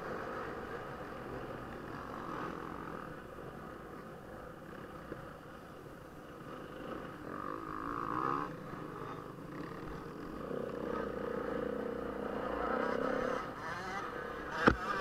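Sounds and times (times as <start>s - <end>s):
motorcycle engine revving: 6.2s - 15.0s.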